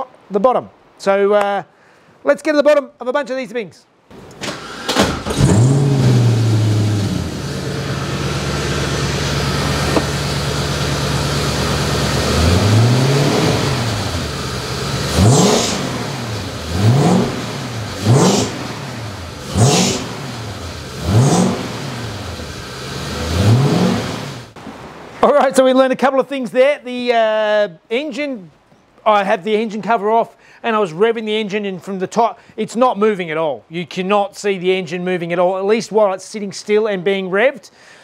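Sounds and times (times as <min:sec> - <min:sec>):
engine revving in throttle blips: 0:04.5 - 0:24.6
car engine idling: 0:05.0 - 0:24.6.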